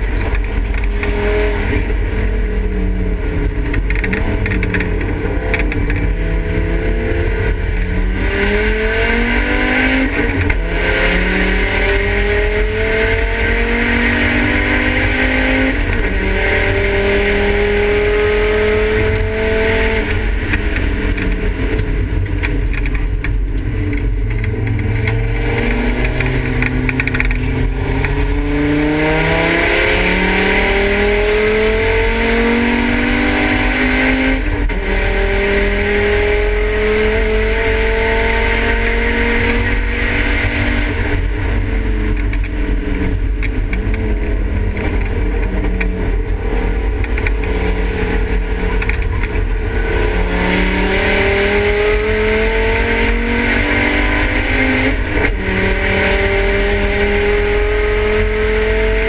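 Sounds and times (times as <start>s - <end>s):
car engine accelerating: 0.0s - 59.0s
road and wind noise: 0.0s - 59.0s.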